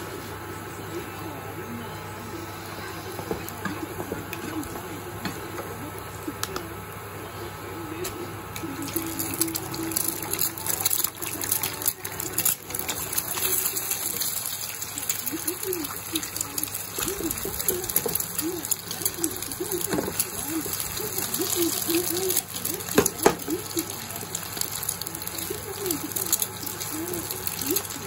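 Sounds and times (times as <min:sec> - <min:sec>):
hot oil sizzling and crackling: 0:08.5 - 0:28.0.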